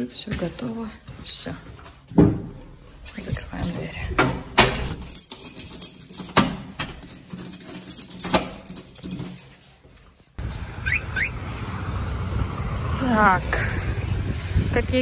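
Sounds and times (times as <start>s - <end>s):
keys jangling: 3.2s - 4.2s, 4.8s - 10.0s.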